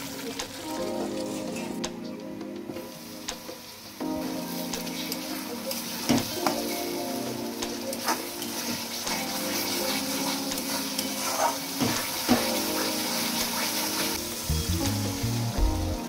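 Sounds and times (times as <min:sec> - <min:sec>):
food sizzling in a pan: 0:00.0 - 0:01.8, 0:02.8 - 0:16.0
metal spatula scraping a pan: 0:08.1 - 0:12.2.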